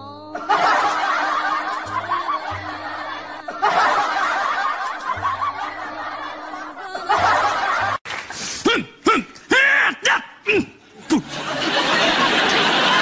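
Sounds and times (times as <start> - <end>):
background music: 0.0 - 13.0
audience laughing: 0.4 - 8.3, 10.8 - 13.0.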